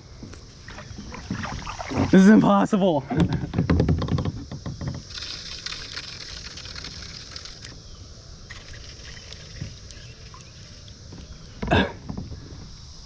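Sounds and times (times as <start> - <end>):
outdoor background: 0.0 - 13.0
gear knocking in plastic kayak: 3.1 - 5.4
scattered ticks: 5.1 - 7.8, 8.5 - 11.0.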